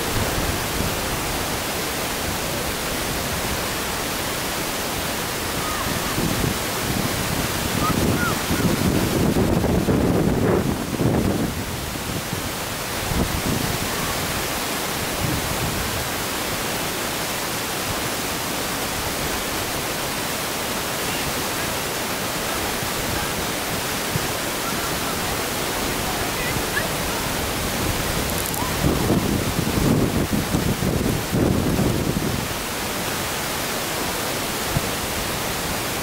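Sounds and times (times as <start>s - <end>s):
wind hiss on microphone: 0.0s - 36.0s
low wind buffeting gusts: 5.0s - 16.2s, 22.4s - 32.7s.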